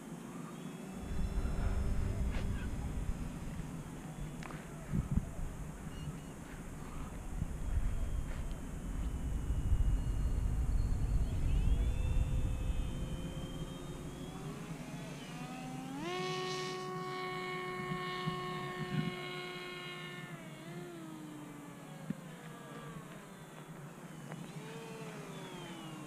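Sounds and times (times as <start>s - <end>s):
model plane motor whine: 0.1s - 26.0s
wind rumble on microphone: 0.9s - 14.9s, 17.0s - 19.6s.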